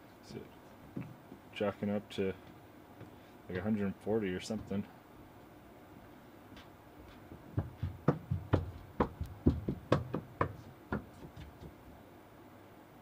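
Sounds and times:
sharp knocks: 7.5 - 11.8.

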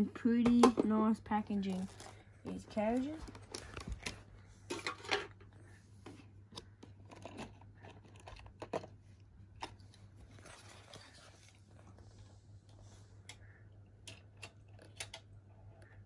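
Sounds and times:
plastic packaging rustling and clicking: 1.4 - 12.3.

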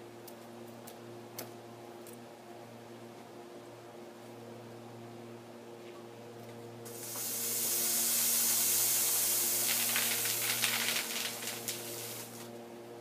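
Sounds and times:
soda geyser spraying hiss: 6.9 - 12.5
crackly spatter: 9.6 - 12.5.

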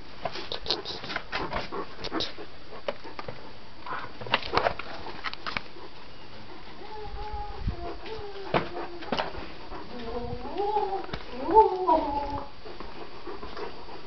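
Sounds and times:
thin steady whine: 0.0 - 14.0.

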